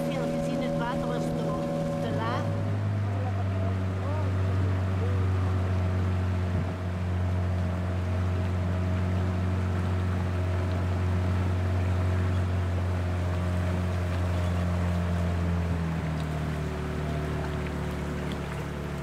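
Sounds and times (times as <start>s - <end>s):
boat motor running: 0.0s - 19.0s.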